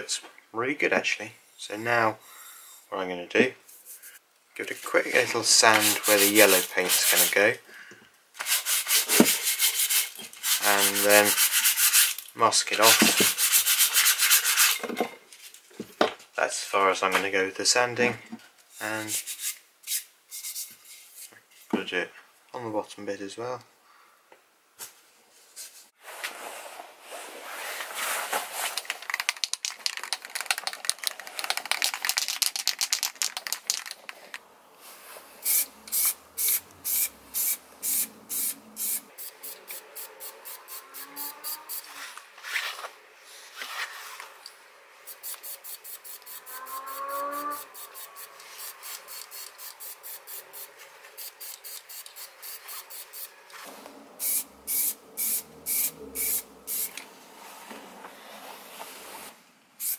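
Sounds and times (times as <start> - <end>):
spray paint can hissing: 35.4 - 41.8, 45.1 - 46.5, 47.7 - 53.3, 54.2 - 57.0.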